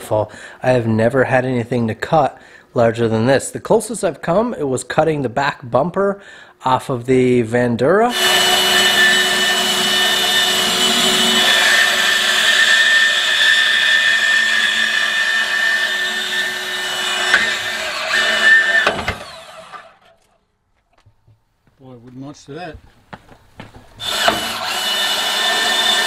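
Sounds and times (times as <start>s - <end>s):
band saw cutting metal: 8.1s - 20.3s, 24.0s - 26.0s.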